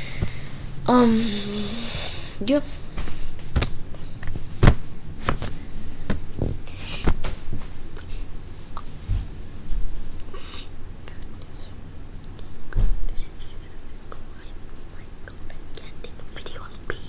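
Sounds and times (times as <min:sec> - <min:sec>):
hands rustling: 0:03.0 - 0:08.2.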